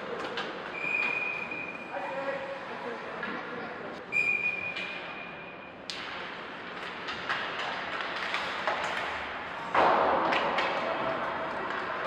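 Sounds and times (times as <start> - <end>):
puck and sticks knocking: 6.7 - 12.0.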